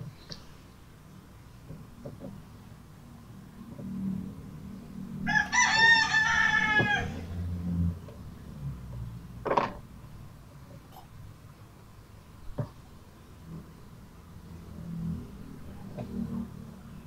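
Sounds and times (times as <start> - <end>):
low hum: 0.0 - 17.0
rooster crowing: 5.2 - 7.5.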